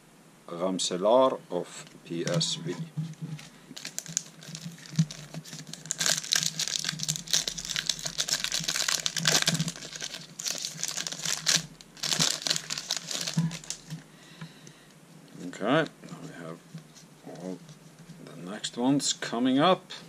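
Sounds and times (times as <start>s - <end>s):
foil wrapper crinkling: 3.4s - 14.0s
foil pack being torn open: 3.8s - 14.0s.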